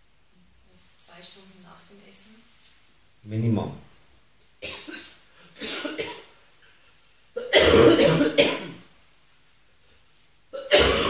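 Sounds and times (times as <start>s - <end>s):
person clearing throat: 4.6s - 6.3s, 7.4s - 8.9s, 10.5s - 11.0s
person coughing: 4.6s - 6.3s, 7.4s - 8.9s, 10.6s - 11.0s.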